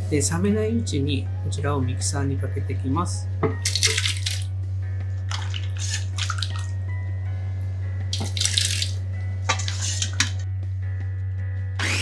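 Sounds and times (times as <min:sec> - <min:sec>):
soup splashing into blender jar: 0:03.6 - 0:04.5, 0:05.3 - 0:06.8, 0:08.2 - 0:10.4.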